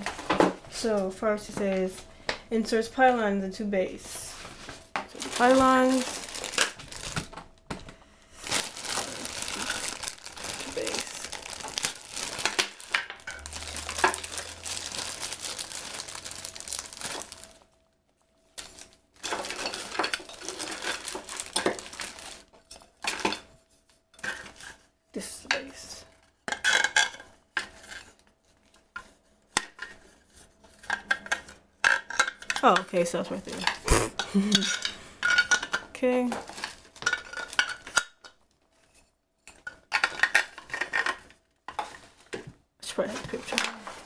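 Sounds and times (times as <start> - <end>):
plastic bag crinkling: 4.2 - 7.7, 8.4 - 17.9, 18.6 - 22.5
hard plastic parts clattering: 8.5 - 17.6, 18.6 - 23.4.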